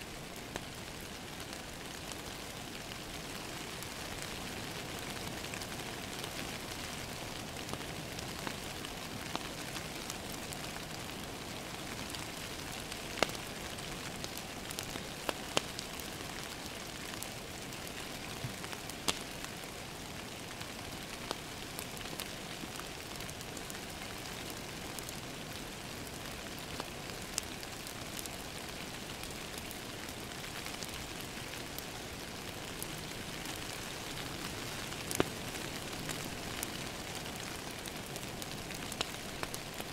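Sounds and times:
crackling wood fire: 0.0s - 39.9s
rain pattering on window glass: 0.2s - 39.9s
fire pops: 34.9s - 36.7s.

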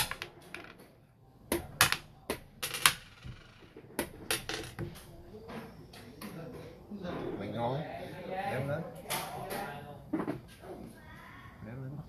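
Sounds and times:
game pieces clacking on wooden board: 0.0s - 0.9s, 1.5s - 5.1s.

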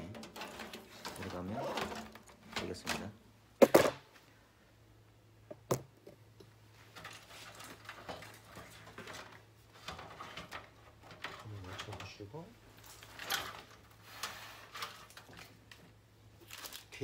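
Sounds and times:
power supply knocking into metal case: 3.6s - 4.0s.

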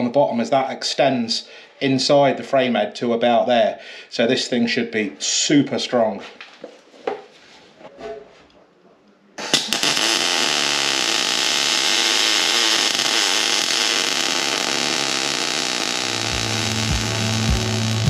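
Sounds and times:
welder arc crackling: 9.4s - 18.0s.

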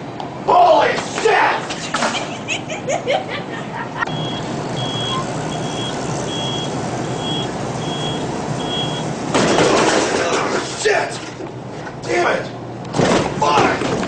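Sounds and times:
steady hum: 0.0s - 14.0s
reversing beeper: 4.1s - 9.7s.

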